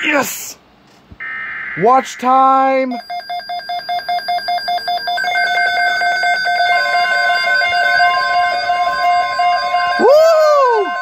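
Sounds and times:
long steady alert tone: 1.2s - 11.0s
weather alert radio beeping: 1.2s - 11.0s.

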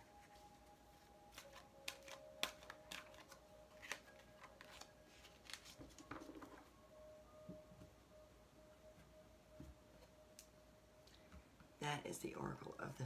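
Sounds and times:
cards being shuffled: 1.3s - 6.6s.

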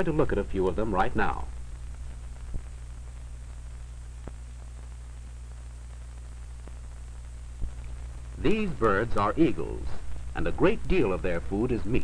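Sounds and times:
film soundtrack hum and hiss: 0.0s - 12.0s
faint clicks: 4.2s - 5.3s.

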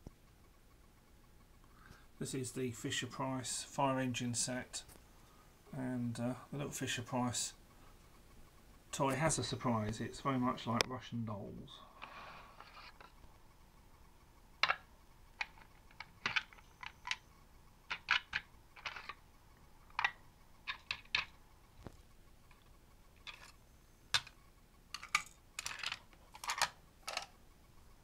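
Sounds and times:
plastic toys scraping: 11.9s - 13.2s, 17.9s - 19.2s, 20.0s - 21.3s, 23.2s - 23.6s, 24.2s - 27.3s
plastic toys clicking and knocking: 14.6s - 17.2s, 17.9s - 19.2s, 19.9s - 21.4s, 22.5s - 27.4s.

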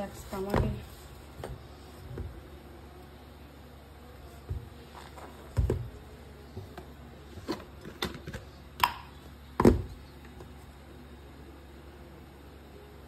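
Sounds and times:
dull thumps: 0.3s - 2.4s.

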